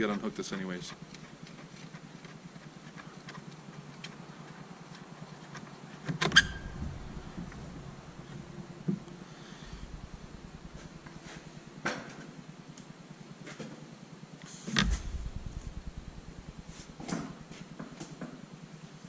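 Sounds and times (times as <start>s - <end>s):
dull thud: 6.4s - 9.0s, 14.8s - 17.6s.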